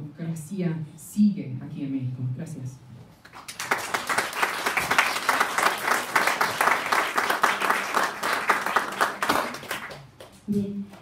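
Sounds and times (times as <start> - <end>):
people clapping: 3.2 - 11.0.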